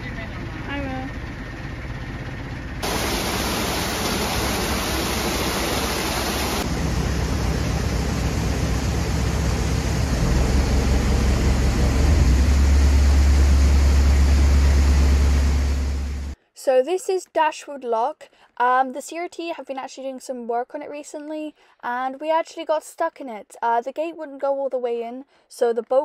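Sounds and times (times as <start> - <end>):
deep rumble: 0.0 - 16.4
water rushing into lock: 2.8 - 16.4.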